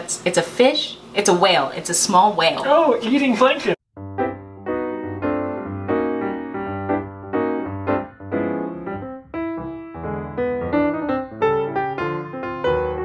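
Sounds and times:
low bass line: 4.0s - 11.9s
keyboard chords: 4.0s - 13.0s.

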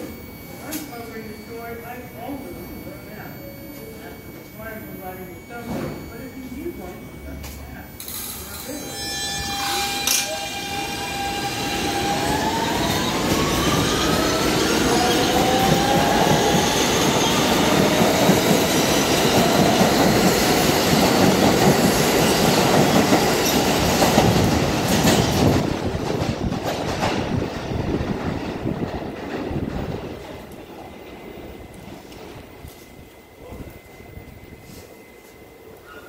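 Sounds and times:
train traction motors whining: 0.0s - 36.0s
train wheels clattering on rails: 11.7s - 32.5s.

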